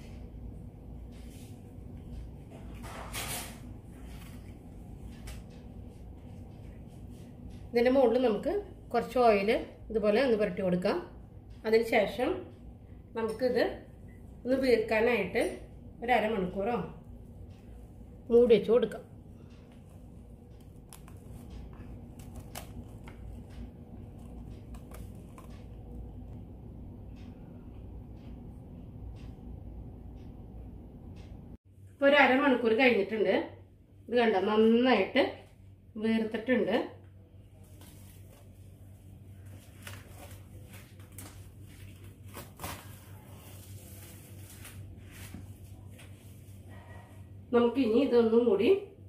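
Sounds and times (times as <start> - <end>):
cling film rustling and crinkling: 20.7 - 25.9, 39.4 - 46.2.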